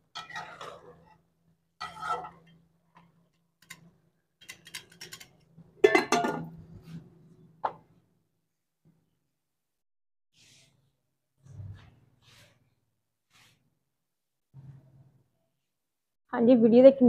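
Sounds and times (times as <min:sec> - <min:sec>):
spoon scraping steel pot: 0:00.0 - 0:01.2, 0:01.8 - 0:03.8
metal lid clanking on pot: 0:05.8 - 0:06.5.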